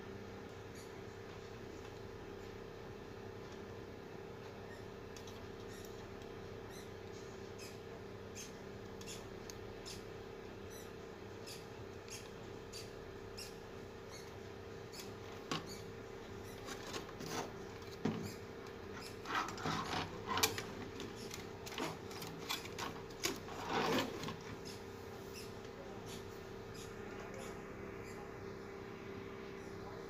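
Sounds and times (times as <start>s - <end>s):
steady hum: 0.0s - 30.0s
circuit board being handled: 16.5s - 24.8s.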